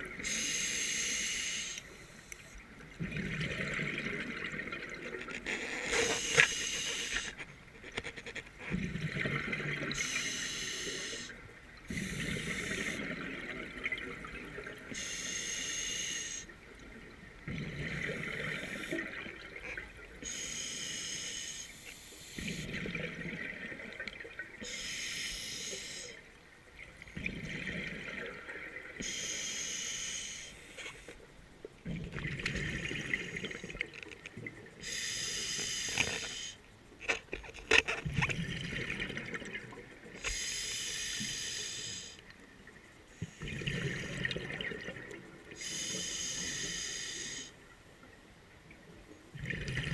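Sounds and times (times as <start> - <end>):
hissing regulator inhalation: 0.3 - 1.9, 5.9 - 7.4, 10.0 - 11.3, 15.0 - 16.5, 20.2 - 22.6, 24.6 - 26.2, 29.0 - 31.1, 34.8 - 36.6, 40.2 - 42.2, 45.6 - 47.6.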